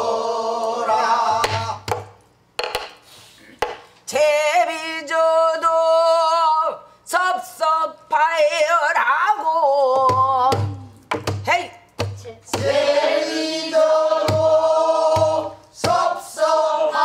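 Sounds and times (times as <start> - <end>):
sharp knocks: 1.3 - 3.0, 10.0 - 12.8.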